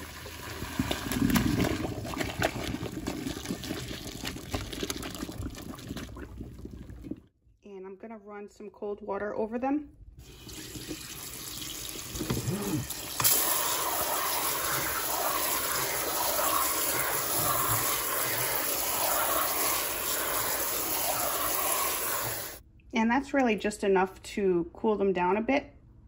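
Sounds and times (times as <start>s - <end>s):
faucet water running into colander: 0.0s - 5.5s, 10.2s - 22.6s.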